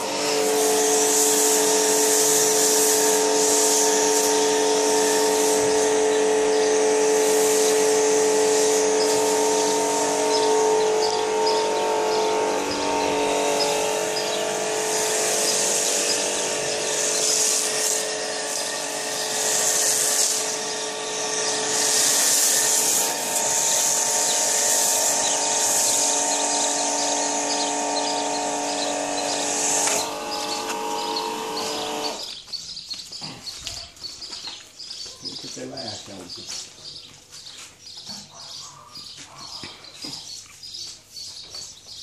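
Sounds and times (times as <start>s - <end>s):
hissing foam spray: 0.0s - 32.3s
pressure washer pump hum: 0.0s - 32.4s.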